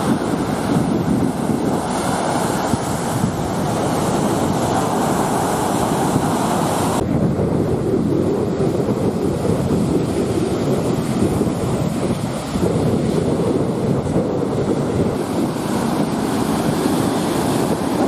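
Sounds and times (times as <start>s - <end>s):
surf washing onto beach: 0.0s - 18.0s
wind buffeting microphone: 0.0s - 18.0s.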